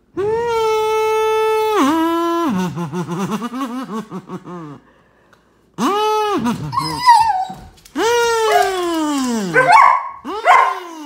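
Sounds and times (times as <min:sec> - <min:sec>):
dog whining: 0:06.6 - 0:11.0.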